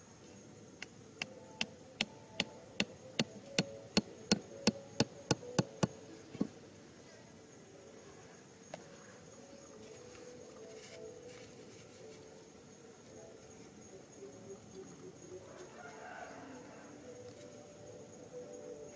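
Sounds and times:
insects buzzing: 0.0s - 18.9s
hatchet hammering wooden stake: 1.2s - 6.0s.

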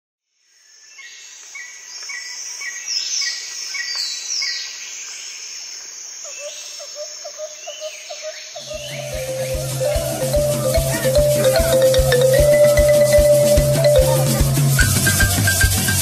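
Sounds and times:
high insect drone: 4.8s - 16.0s
birds calling: 6.4s - 16.0s
lower bird call: 7.4s - 16.0s.

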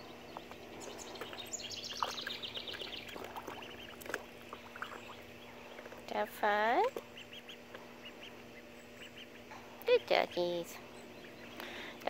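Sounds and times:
ducklings peeping: 0.0s - 12.0s.

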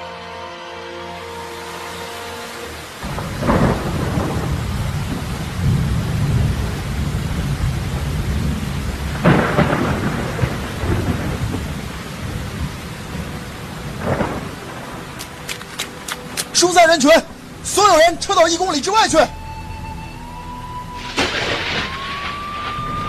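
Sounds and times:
steady rain: 0.0s - 23.0s
rumbling thunder: 3.0s - 15.2s, 20.9s - 23.0s
thunder cracks: 3.0s - 15.2s, 20.9s - 23.0s.

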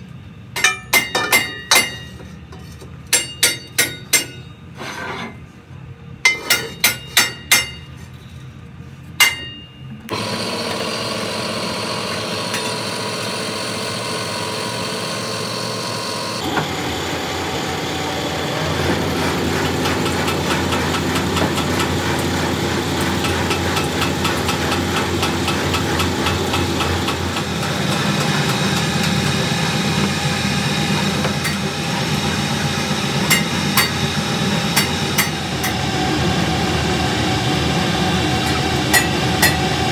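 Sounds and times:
steel rim clanking: 0.6s - 5.4s, 9.2s - 10.0s
rim-rolling machine running: 9.9s - 39.9s.

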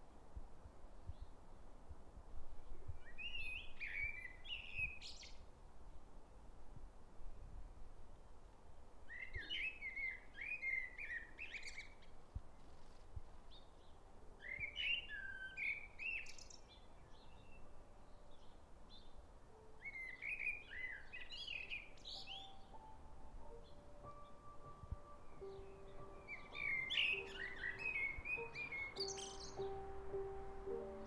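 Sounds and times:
blackbird singing: 3.0s - 5.4s, 9.1s - 12.1s, 13.5s - 19.2s, 19.8s - 31.0s.

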